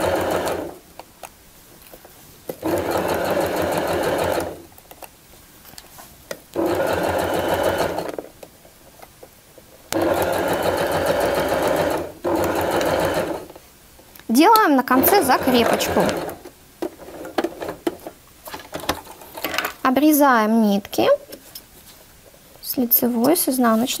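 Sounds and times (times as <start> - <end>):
sewing machine stitching: 0.0 - 0.8, 2.6 - 4.6, 6.6 - 8.2, 9.9 - 13.6, 14.9 - 16.4.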